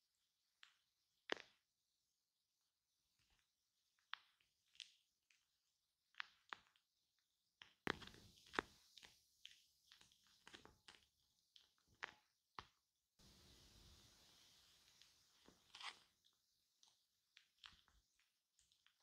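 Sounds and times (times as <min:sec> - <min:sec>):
shaving cream crackling and squishing: 0:00.4 - 0:19.0
steady rustling hiss: 0:08.0 - 0:10.7, 0:13.2 - 0:16.3.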